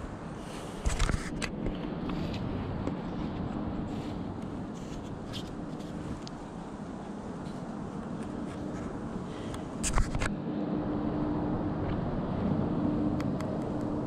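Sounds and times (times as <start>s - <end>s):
outdoor background rush: 0.0s - 14.0s.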